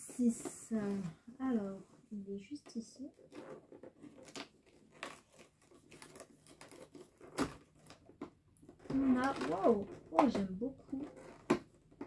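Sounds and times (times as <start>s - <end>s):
cardboard tearing and crinkling: 3.2s - 10.1s.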